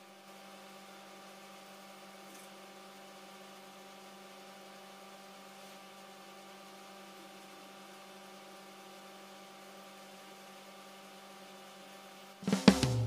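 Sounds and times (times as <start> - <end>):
faint steady hum: 0.0 - 13.0
even hiss: 12.4 - 13.0.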